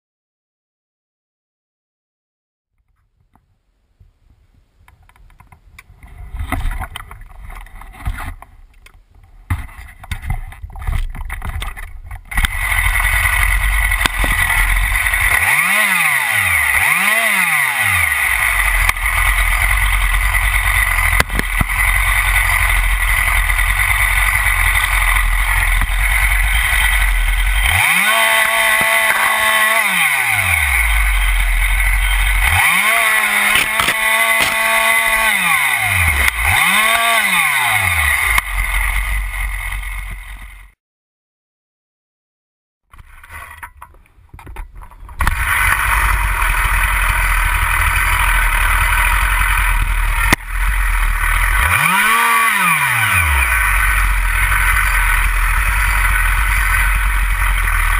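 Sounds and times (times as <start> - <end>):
knocks and rattles: 9.5 - 15.6
chainsaw engine idling: 12.2 - 40.8, 45.2 - 57.9
chainsaw cutting at full throttle: 12.3 - 40.8, 45.2 - 57.9.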